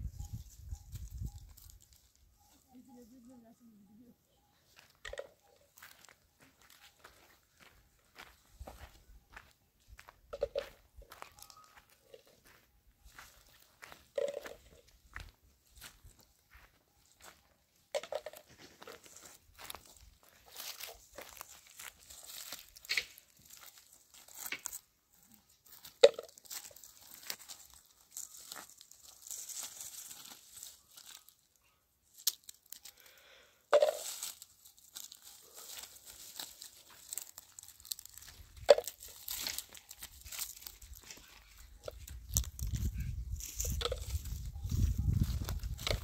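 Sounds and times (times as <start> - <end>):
rustling: 18.2 - 31.5, 33.8 - 46.0
sharp snaps and crunches: 20.6 - 24.9, 32.1 - 33.1, 34.0 - 46.0.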